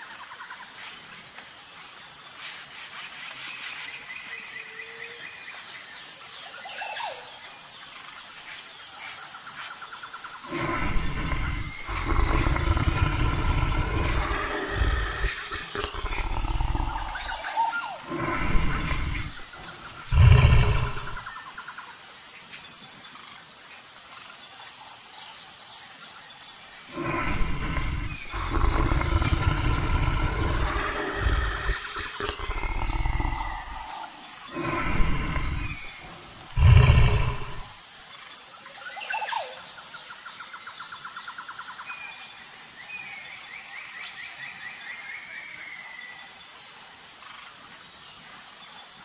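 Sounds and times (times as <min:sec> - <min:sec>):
crickets chirring: 0:00.0 - 0:49.0
birds chirping: 0:08.0 - 0:21.5, 0:26.8 - 0:37.8
bear roaring and growling: 0:10.5 - 0:21.3, 0:26.9 - 0:37.7.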